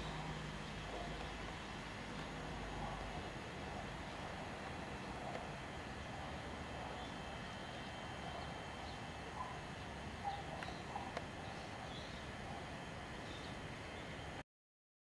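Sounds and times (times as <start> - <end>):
faint bird chirps: 0.0 - 14.4
outdoor background noise: 0.0 - 14.4.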